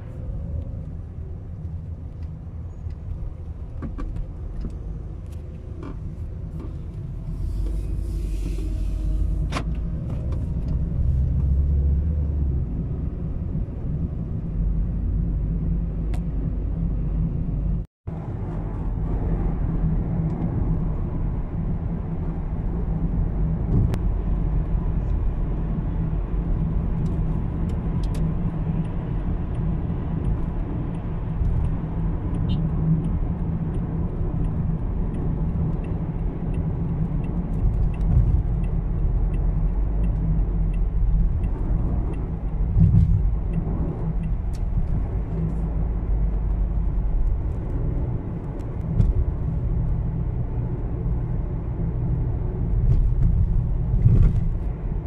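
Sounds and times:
car engine and tyre rumble: 0:00.0 - 0:55.0.

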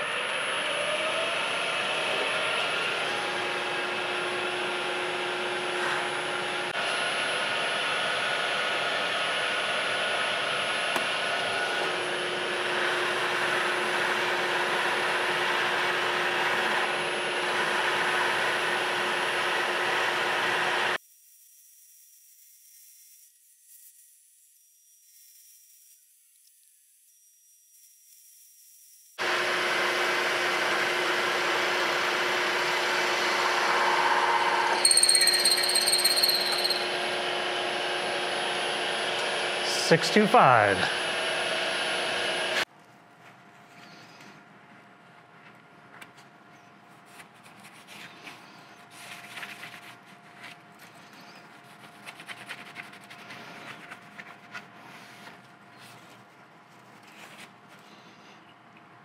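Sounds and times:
end mill cutting metal: 0:29.2 - 0:42.6
steady machine hum: 0:29.2 - 0:42.6
high-pitched squeal: 0:33.5 - 0:41.4.

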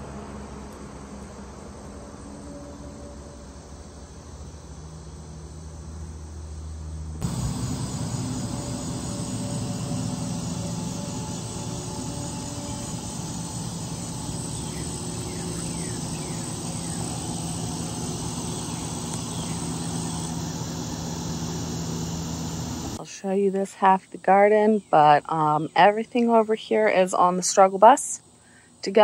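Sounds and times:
machine drone: 0:07.2 - 0:23.0.

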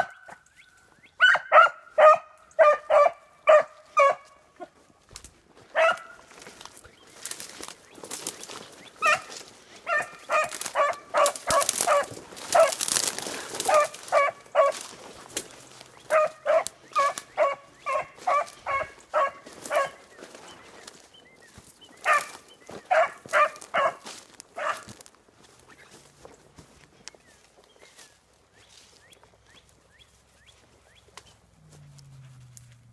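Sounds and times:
hound baying: 0:01.2 - 0:04.8, 0:05.7 - 0:06.2, 0:09.0 - 0:21.0, 0:22.0 - 0:24.9
rustle of brush: 0:05.1 - 0:16.1.

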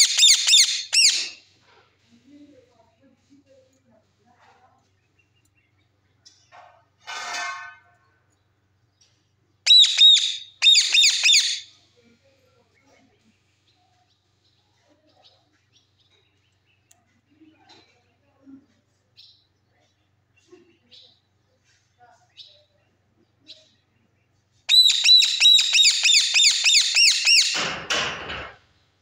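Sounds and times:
parakeet squawking: 0:00.0 - 0:01.4, 0:09.7 - 0:11.7, 0:24.7 - 0:27.6.

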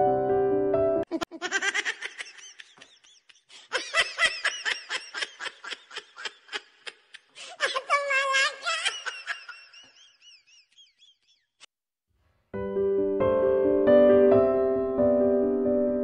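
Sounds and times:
piano music: 0:00.0 - 0:01.1, 0:12.5 - 0:16.0
high-pitched giggling laughter: 0:01.1 - 0:11.1.

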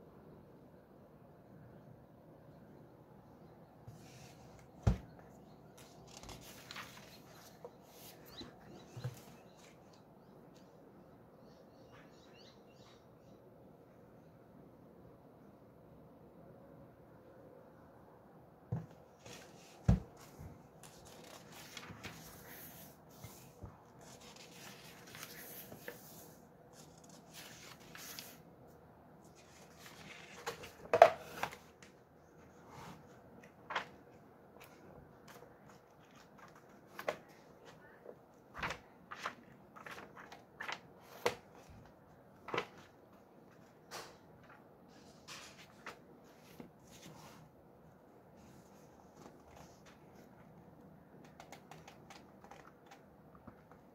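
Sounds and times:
book pages rustling: 0:03.9 - 0:10.0, 0:18.7 - 0:28.4, 0:29.2 - 0:32.0, 0:32.8 - 0:37.9, 0:38.5 - 0:47.5, 0:48.4 - 0:53.9.

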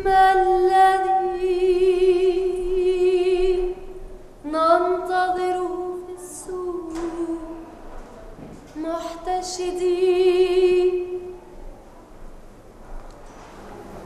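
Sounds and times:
woman singing unaccompanied: 0:00.0 - 0:07.7, 0:08.7 - 0:11.3.

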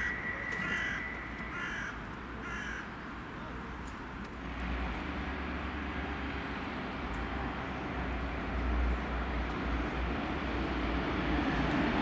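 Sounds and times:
electric train approaching: 0:00.0 - 0:02.4, 0:04.4 - 0:12.0
crow cawing: 0:00.6 - 0:02.8.

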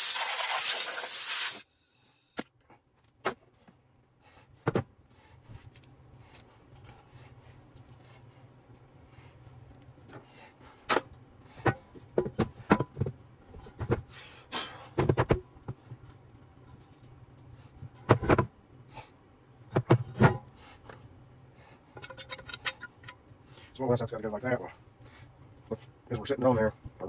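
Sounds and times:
metal parts and tools clinking: 0:22.0 - 0:23.2.

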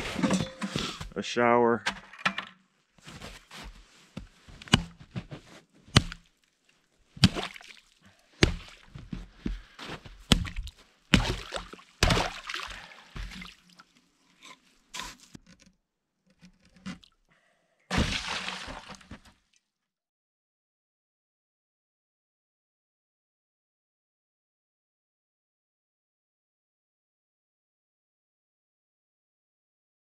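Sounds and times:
hatchet chopping ice: 0:04.7 - 0:05.0, 0:06.0 - 0:06.2, 0:07.2 - 0:07.6, 0:08.4 - 0:08.8, 0:10.3 - 0:12.4
ice breaking: 0:07.2 - 0:08.9, 0:10.3 - 0:13.6, 0:17.9 - 0:19.3
water splashing: 0:07.2 - 0:08.9, 0:10.3 - 0:14.1, 0:17.9 - 0:19.2
water pouring into plastic bucket: 0:17.9 - 0:19.2.

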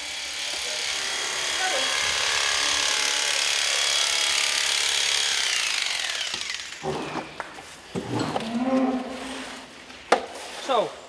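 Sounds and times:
electric motor whine winding down: 0:00.0 - 0:07.4.

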